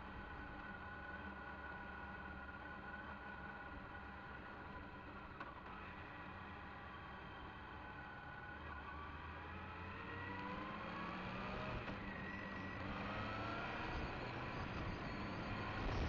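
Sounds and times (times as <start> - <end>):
wind and road noise: 8.3 - 16.0
motorcycle engine accelerating: 8.8 - 16.0.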